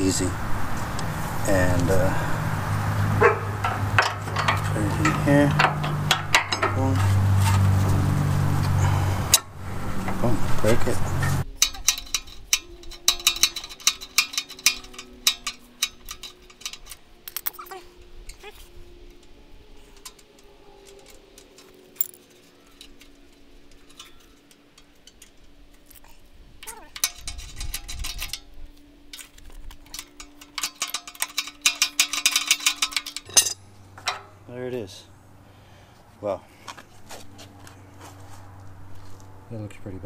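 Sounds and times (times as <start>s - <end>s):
handling noise: 0.0s - 34.9s
ratchet socket clicking: 11.4s - 17.7s, 29.2s - 33.3s.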